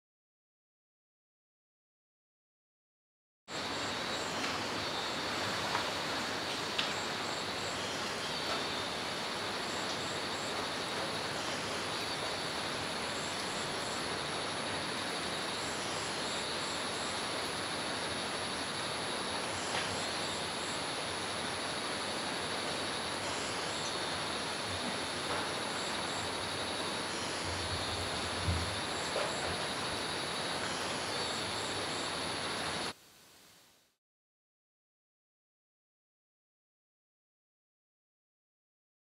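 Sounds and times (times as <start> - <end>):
high insect drone: 3.5 - 33.0
steady hiss: 3.5 - 34.0.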